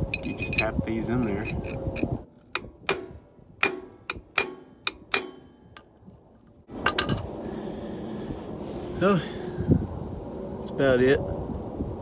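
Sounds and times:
hammer tapping metal stud: 2.6 - 5.9.

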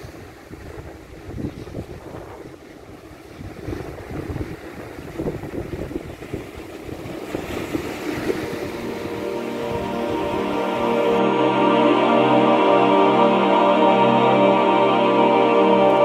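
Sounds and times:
wind buffeting microphone: 0.0 - 10.6
sea surf: 0.0 - 16.0.

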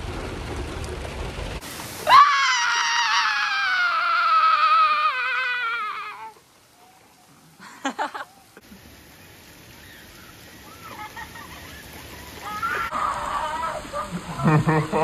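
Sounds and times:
heavy rain on flooded street: 0.0 - 15.0
person crying out: 2.1 - 6.4.

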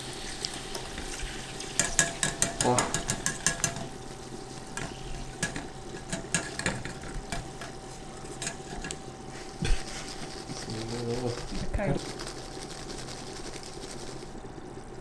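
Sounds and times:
hot oil sizzling and crackling: 0.0 - 15.0.

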